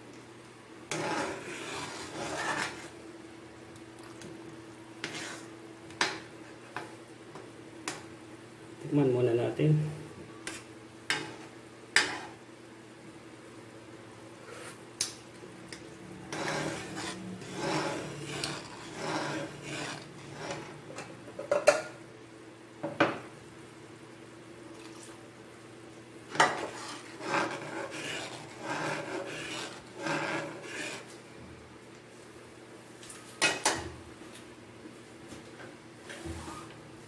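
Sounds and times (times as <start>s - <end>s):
spatula scraping a pan: 0.9s - 3.0s, 5.0s - 6.3s, 10.4s - 12.4s, 16.2s - 21.1s, 26.3s - 31.2s.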